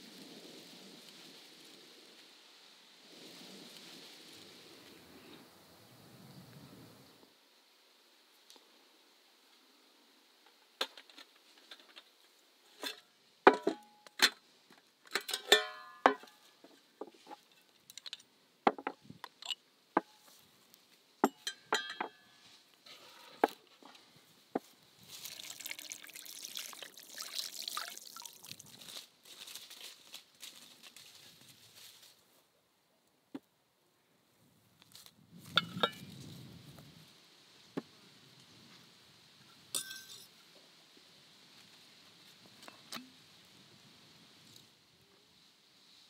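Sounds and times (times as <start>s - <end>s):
tableware clinking and knocking: 12.8s - 13.9s, 15.2s - 16.3s, 21.2s - 22.4s, 39.8s - 40.3s
footsteps through dry grass: 24.0s - 25.6s, 28.1s - 32.5s.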